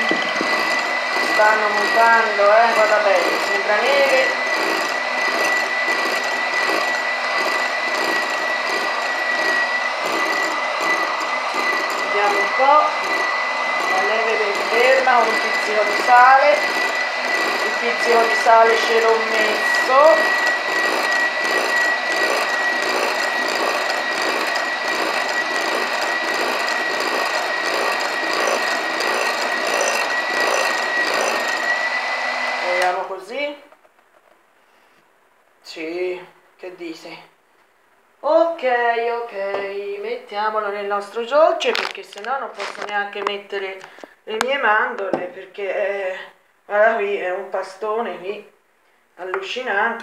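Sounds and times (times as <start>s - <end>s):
electric mixer whining: 0.0s - 33.1s, 41.7s - 44.2s.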